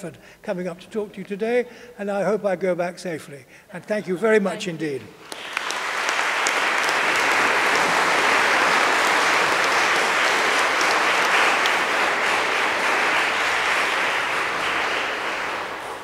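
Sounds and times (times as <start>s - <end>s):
audience applauding: 5.2s - 16.0s.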